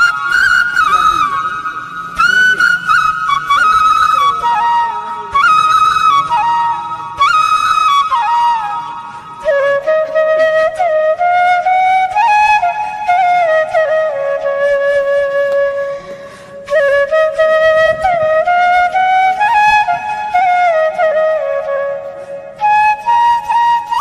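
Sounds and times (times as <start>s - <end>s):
flute playing slow melody: 0.0s - 24.0s.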